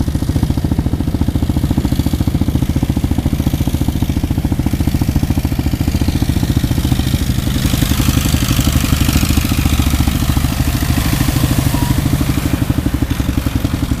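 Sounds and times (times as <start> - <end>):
vehicle engine running: 0.0 - 14.0
tyres splashing through water: 6.7 - 14.0.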